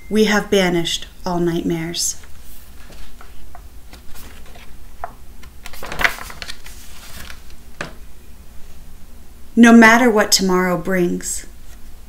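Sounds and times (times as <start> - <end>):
book pages rustling: 2.2 - 8.0.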